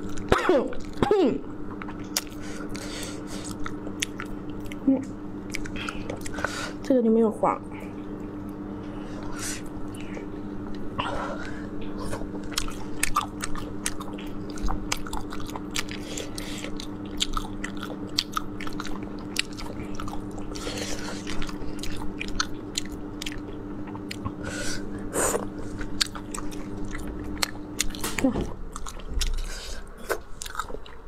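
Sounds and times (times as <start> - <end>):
wet sucking and chewing: 1.7 - 4.8, 11.8 - 31.0.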